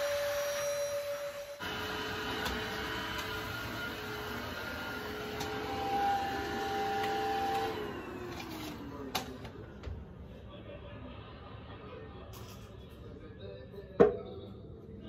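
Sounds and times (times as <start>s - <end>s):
vacuum cleaner whining: 0.0s - 9.9s.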